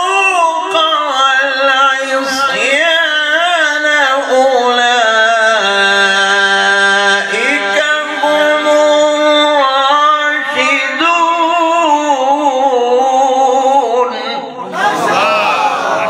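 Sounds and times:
man chanting melodic recitation: 0.0s - 16.0s.

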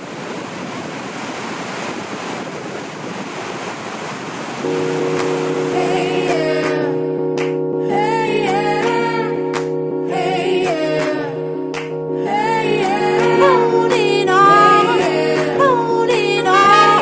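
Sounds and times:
music with held chords: 4.6s - 17.0s
person singing: 4.6s - 17.0s.

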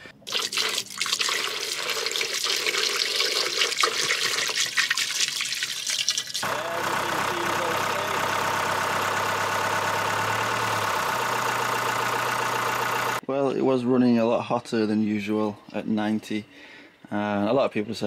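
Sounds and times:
coolant splashing and gurgling: 0.2s - 6.5s
diesel engine idling: 6.4s - 13.2s.

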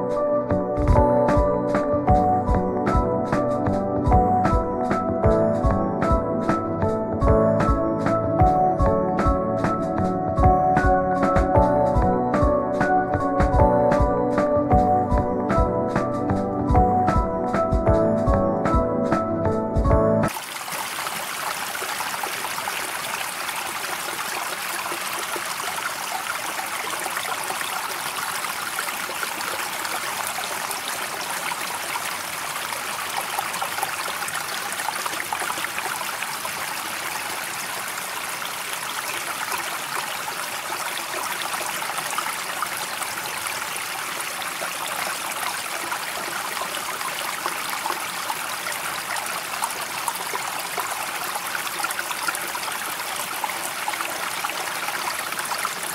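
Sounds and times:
running water: 20.3s - 55.9s.

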